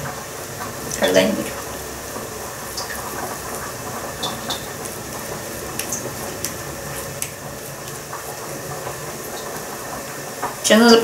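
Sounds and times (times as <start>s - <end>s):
squishing of minced meat: 3.5s - 8.6s.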